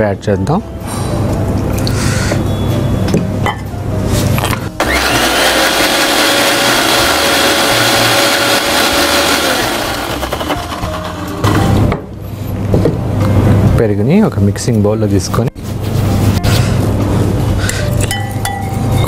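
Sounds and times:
mixer grinder motor running: 0:04.8 - 0:11.6.

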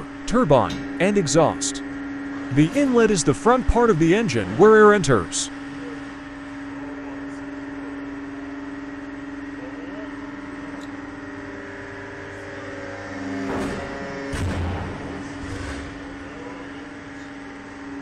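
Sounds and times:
machine hum with low drone: 0:00.0 - 0:18.0
short noisy bumps: 0:13.3 - 0:16.4.

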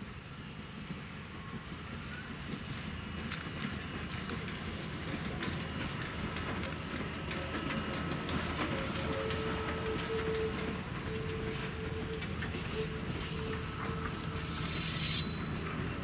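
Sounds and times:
steam locomotive rumbling: 0:00.0 - 0:16.0
wheels clicking: 0:02.5 - 0:14.2.

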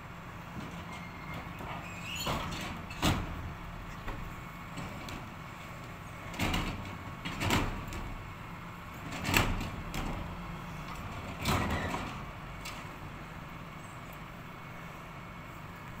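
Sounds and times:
truck engine hum: 0:00.0 - 0:16.0
wheelie bin banging and rattling: 0:06.2 - 0:08.3, 0:09.0 - 0:10.3.

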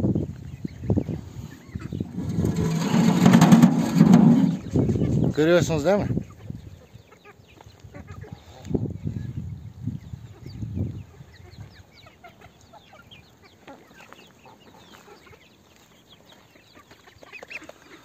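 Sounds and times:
chickens clucking: 0:00.1 - 0:09.3, 0:09.9 - 0:18.0
low thumps: 0:02.0 - 0:05.0.

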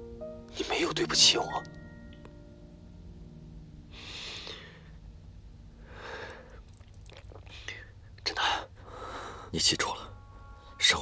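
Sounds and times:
low steady hum: 0:00.0 - 0:11.0
man breathing heavily: 0:05.8 - 0:06.7, 0:08.8 - 0:09.6.

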